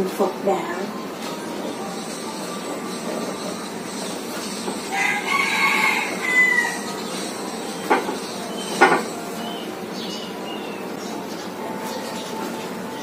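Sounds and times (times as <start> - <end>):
rooster crowing: 4.9 - 7.1.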